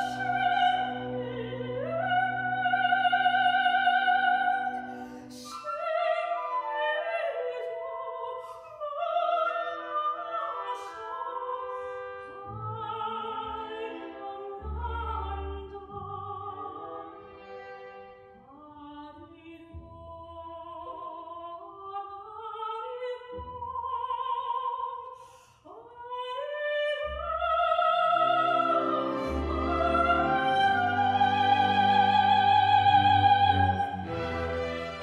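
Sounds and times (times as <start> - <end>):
chamber orchestra: 0.0 - 19.5, 26.6 - 35.0
soprano singing: 0.0 - 35.0.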